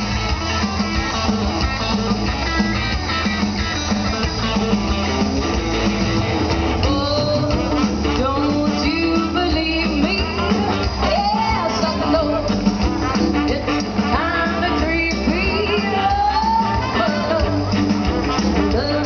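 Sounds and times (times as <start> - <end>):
electric guitar: 0.0 - 19.0
rockabilly band playing live: 0.0 - 19.0
person singing: 6.8 - 19.0.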